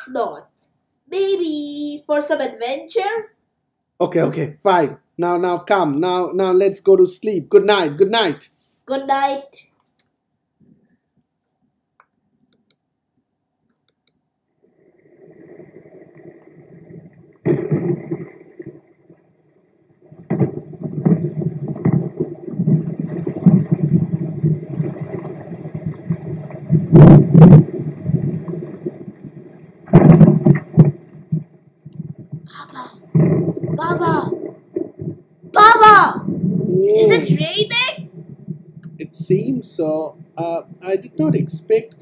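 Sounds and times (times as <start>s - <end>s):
thunder rumbling: 15.0s - 19.2s, 20.0s - 41.7s
sharp thunder cracks: 17.0s - 18.8s, 20.1s - 39.4s
low thunder burst: 20.1s - 35.6s.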